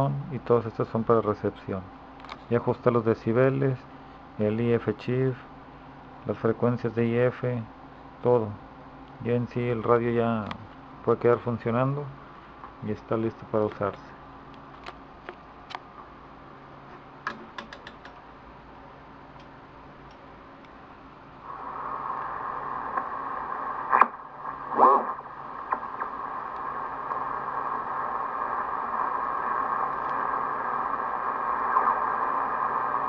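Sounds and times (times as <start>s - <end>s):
radio static hiss: 6.3s - 14.3s, 21.4s - 33.0s
radio control clicks: 13.6s - 15.9s, 22.9s - 23.1s, 23.8s - 28.6s, 29.5s - 30.3s.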